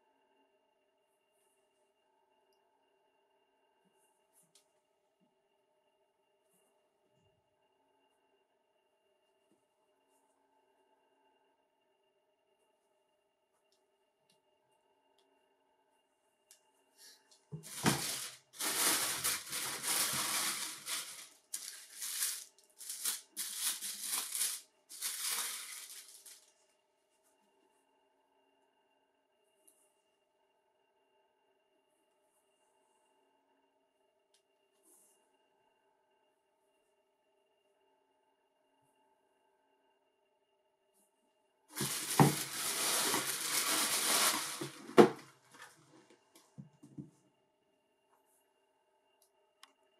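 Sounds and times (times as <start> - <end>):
tissue paper rustling: 17.6 - 26.5, 41.7 - 45.7.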